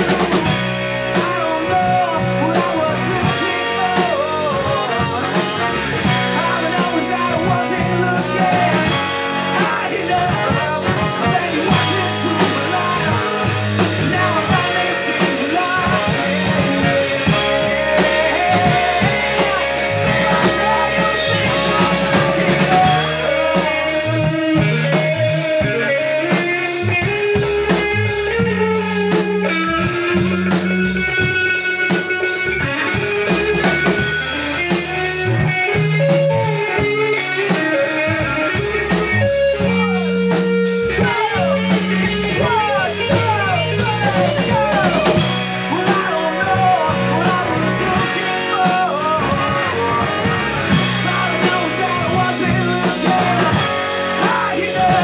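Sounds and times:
bass: 0.0s - 55.0s
drum kit: 0.0s - 55.0s
electric guitar: 0.0s - 55.0s.

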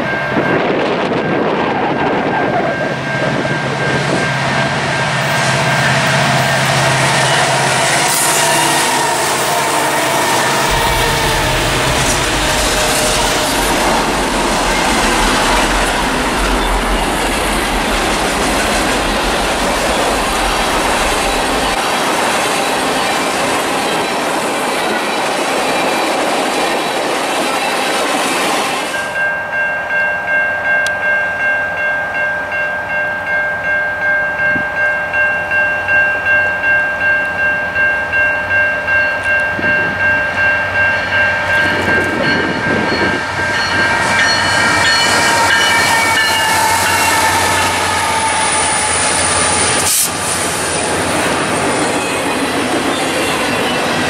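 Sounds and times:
freight cars rolling on rails: 0.0s - 29.5s, 36.5s - 54.0s
crossing bell ringing: 0.0s - 54.0s
train horn blast: 4.0s - 18.4s, 42.9s - 50.3s.

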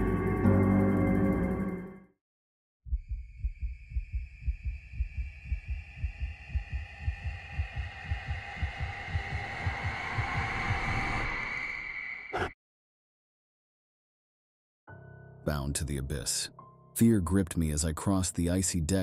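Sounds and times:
low heartbeat-like thuds: 2.9s - 11.2s.

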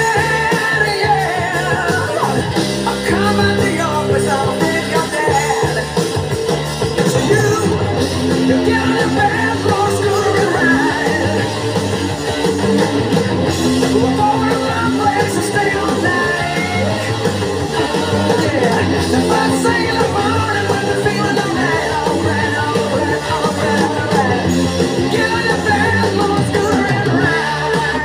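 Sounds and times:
man singing lead vocal: 0.0s - 6.2s, 6.9s - 11.7s, 13.4s - 28.0s
electric guitar: 0.0s - 28.0s
hard rock music: 0.0s - 28.0s.

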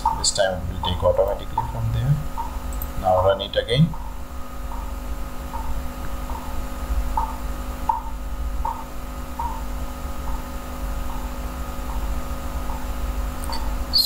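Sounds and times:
low electrical hum: 0.0s - 14.0s
faint short chirp: 13.5s - 14.0s.

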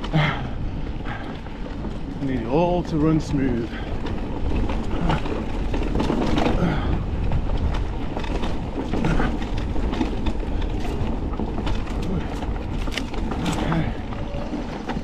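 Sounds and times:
bike rattles and clicks: 0.0s - 15.0s
bike tyres rolling on dirt: 0.0s - 15.0s.

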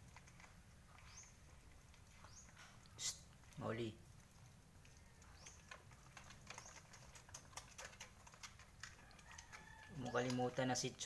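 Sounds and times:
puppy suckling clicks and smacks: 0.0s - 0.6s, 2.8s - 10.8s.

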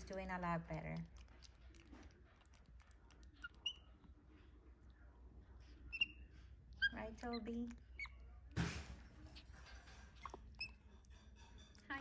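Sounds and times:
monkey squeaky peeps: 3.3s - 4.0s, 5.9s - 8.3s, 10.1s - 11.0s.

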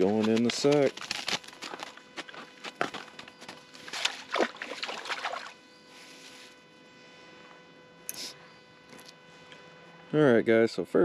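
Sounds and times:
water sloshing: 3.8s - 5.6s.

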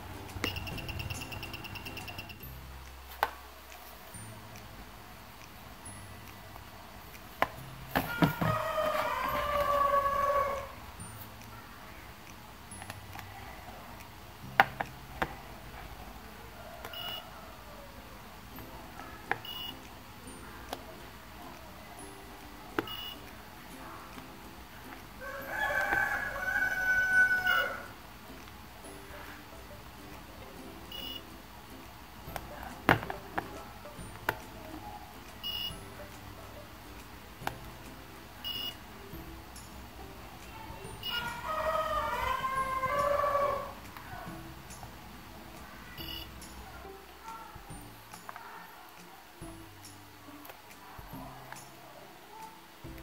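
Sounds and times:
ukulele music: 0.0s - 9.7s, 18.3s - 25.2s, 27.9s - 41.1s
piezo buzzer sounding pulses: 0.4s - 2.5s, 46.0s - 46.4s.

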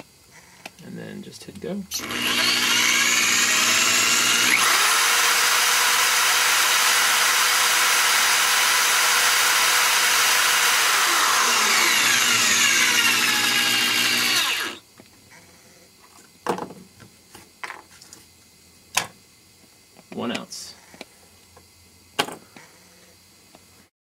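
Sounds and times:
electric drill whining: 1.9s - 14.8s.

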